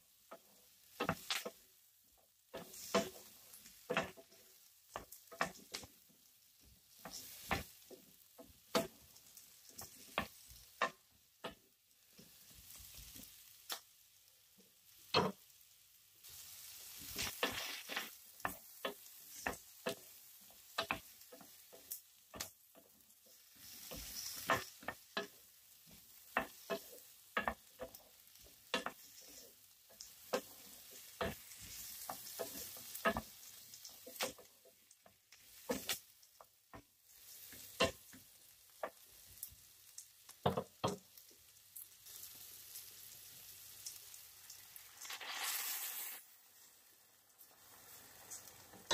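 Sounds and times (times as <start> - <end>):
vegetables sizzling: 0.0 - 48.9
wooden spatula knocking a pan: 0.2 - 1.6, 2.5 - 6.0, 6.9 - 12.4, 15.1 - 15.5, 18.4 - 39.1, 40.4 - 41.2.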